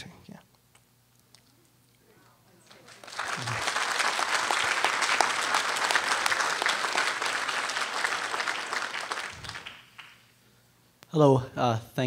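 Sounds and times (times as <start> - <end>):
audience applauding: 2.6 - 10.4.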